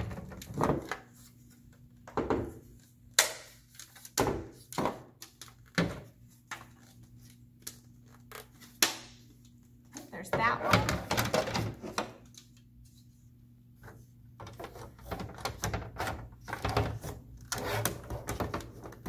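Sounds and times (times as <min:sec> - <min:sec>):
plastic pieces snapping together: 0:03.1 - 0:05.7.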